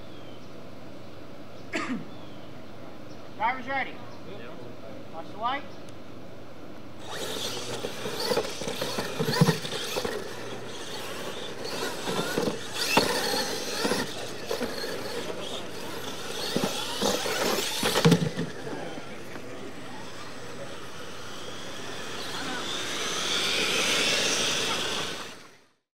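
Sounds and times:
tyres hissing on dirt: 7.0 - 25.7
toy truck motors whining: 7.0 - 25.8
trucks knocking on landing: 7.2 - 19.5.

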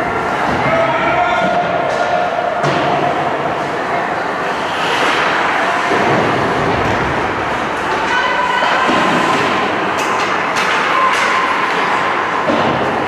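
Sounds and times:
skates and sticks on ice: 3.8 - 13.0
hockey stick clacks: 7.7 - 13.0.

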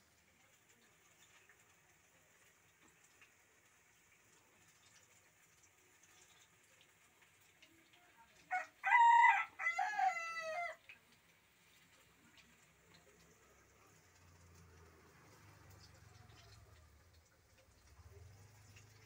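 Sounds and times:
rooster crowing: 8.5 - 10.8.

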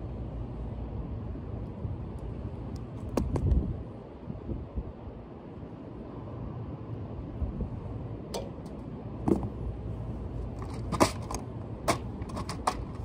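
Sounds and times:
wind rumble on microphone: 0.9 - 8.2.

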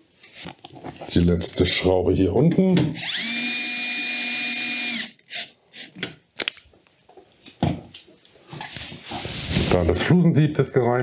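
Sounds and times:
cordless drill whine: 2.9 - 5.9.

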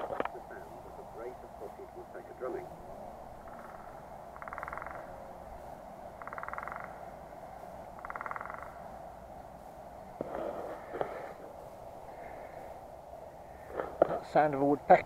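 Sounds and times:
woodpecker drumming over loudspeaker: 0.0 - 5.3, 6.1 - 7.1, 8.0 - 8.9.

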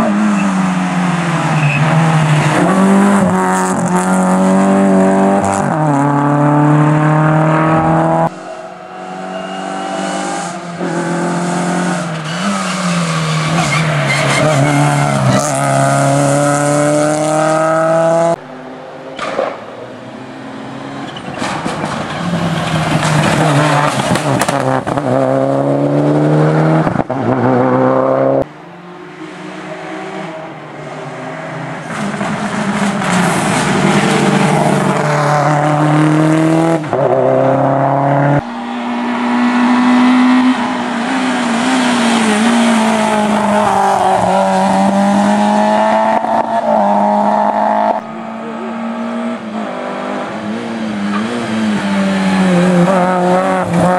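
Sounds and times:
rally car engine revving: 0.0 - 53.9.

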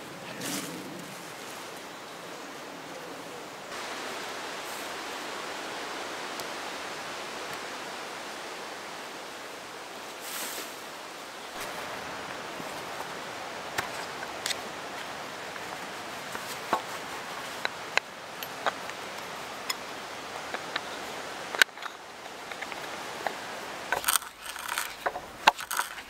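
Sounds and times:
wind in trees: 0.0 - 26.0
hand auger clicks and knocks: 21.5 - 26.0.

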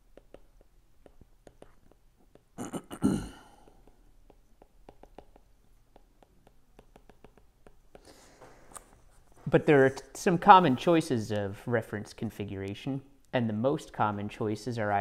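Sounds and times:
stylus tapping on glass screen: 0.1 - 2.5, 3.6 - 8.1
breathy noise: 2.3 - 4.1, 7.9 - 9.0.

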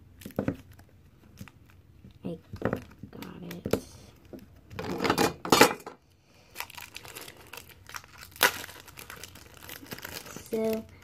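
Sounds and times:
plastic wrapper crinkling: 0.1 - 3.6, 6.4 - 11.0.

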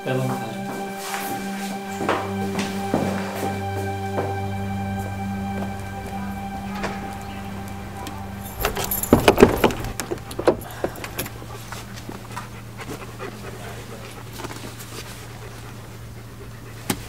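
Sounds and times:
low steady hum: 0.0 - 17.0
dog panting: 10.7 - 17.0.

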